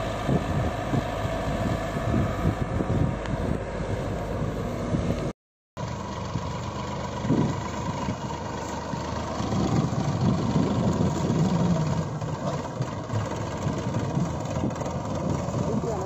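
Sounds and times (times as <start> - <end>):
engine idling: 5.8 - 16.0.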